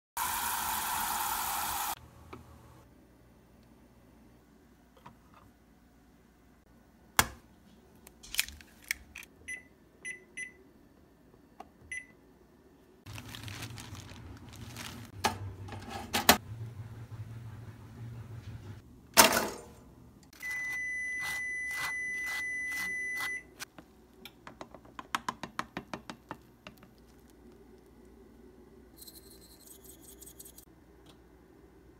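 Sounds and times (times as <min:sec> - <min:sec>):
egg tapping and cracking: 0:24.2 - 0:27.9.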